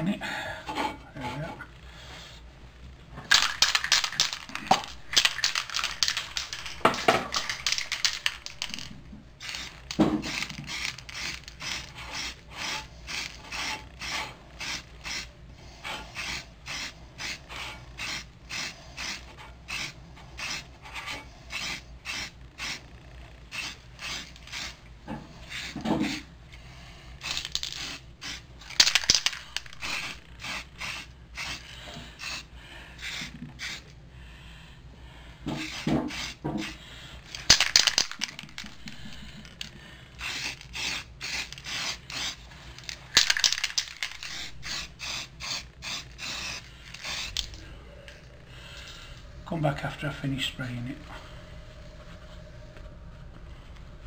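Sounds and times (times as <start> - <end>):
spray can ball rattling: 3.2 - 15.3, 23.5 - 24.8, 27.2 - 32.4, 35.6 - 48.2
spray paint hiss: 3.3 - 22.8, 23.5 - 24.8, 25.4 - 26.3, 27.2 - 33.9, 35.5 - 47.6.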